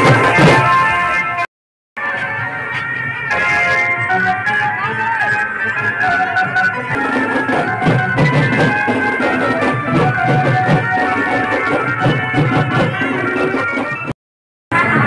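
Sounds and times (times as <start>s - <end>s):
loud music through horn loudspeakers: 2.0s - 14.0s.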